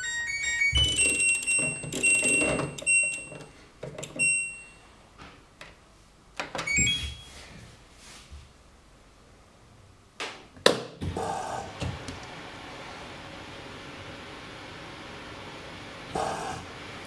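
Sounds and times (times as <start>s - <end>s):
short electronic beeps: 0.0s - 3.5s, 6.7s - 7.3s.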